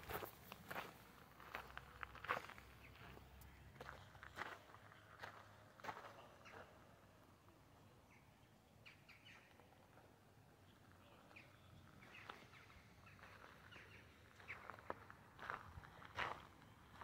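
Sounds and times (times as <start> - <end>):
faint bird chirps: 8.0 - 14.9.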